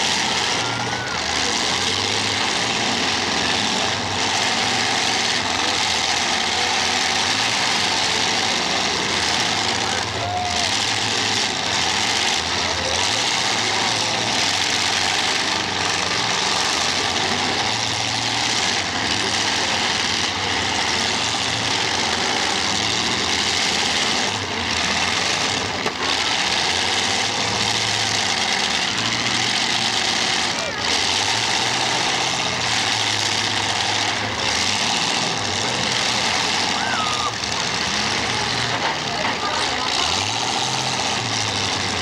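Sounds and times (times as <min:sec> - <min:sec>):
race car engines: 0:00.0 - 0:42.0.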